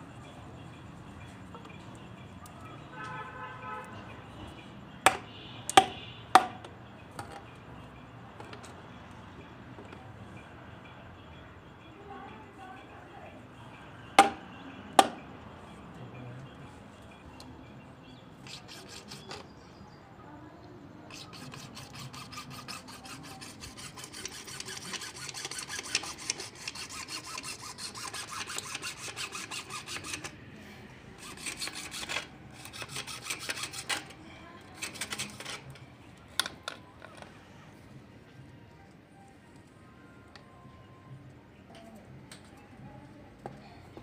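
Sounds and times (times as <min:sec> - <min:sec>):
hacksaw cutting plastic pipe: 0:05.0 - 0:07.4, 0:14.2 - 0:14.4, 0:15.0 - 0:15.2, 0:18.4 - 0:19.6, 0:21.1 - 0:30.4, 0:31.2 - 0:34.2, 0:34.8 - 0:35.8.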